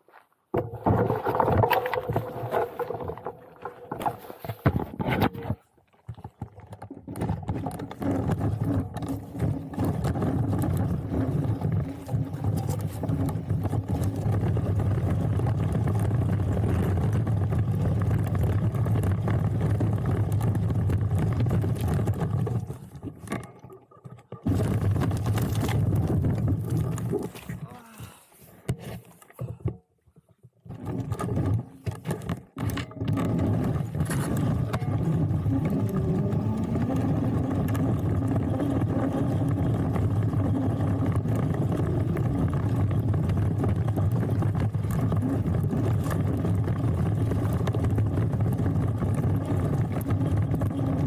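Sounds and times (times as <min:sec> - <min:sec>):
tyres on loose gravel: 0:07.2 - 0:23.3, 0:24.4 - 0:28.2, 0:33.3 - 0:51.0.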